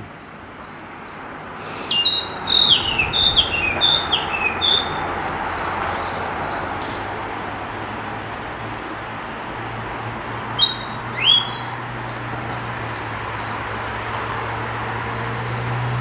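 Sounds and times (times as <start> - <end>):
bird singing whistled notes: 1.8 - 5.5, 10.5 - 12.7.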